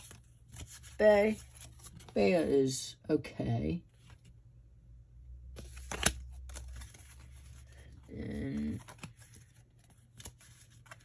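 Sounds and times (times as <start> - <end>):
trading cards clicking and rustling: 5.6 - 11.0.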